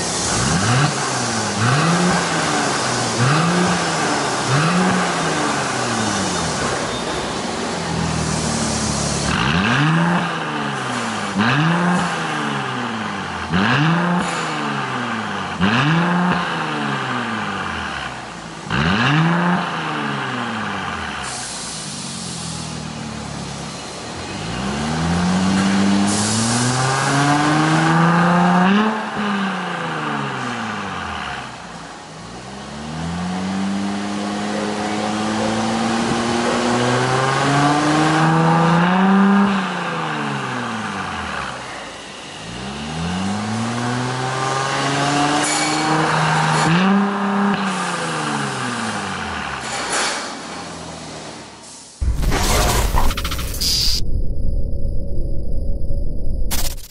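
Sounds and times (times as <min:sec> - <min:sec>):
car engine revving: 0:00.0 - 0:06.7, 0:32.7 - 0:41.6.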